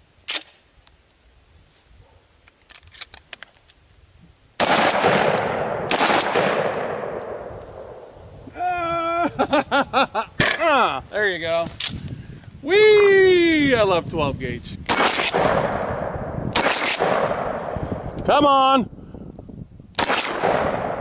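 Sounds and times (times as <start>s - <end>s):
shotgun blasts: 4.6s - 8.0s, 14.9s - 17.8s, 20.0s - 21.0s
gunshot echo: 4.6s - 8.1s, 14.9s - 17.8s, 20.0s - 21.0s.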